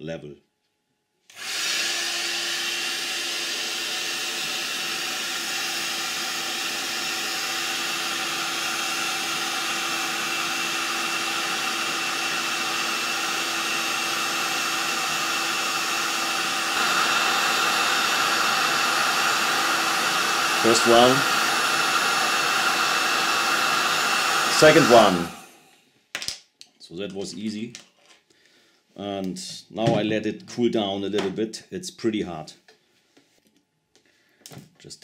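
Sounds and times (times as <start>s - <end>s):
heat gun blowing air: 1.3s - 25.8s.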